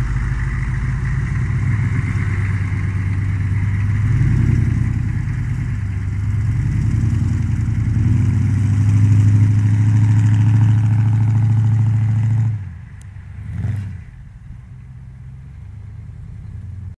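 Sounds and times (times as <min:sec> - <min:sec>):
truck engine drone: 0:00.0 - 0:17.0.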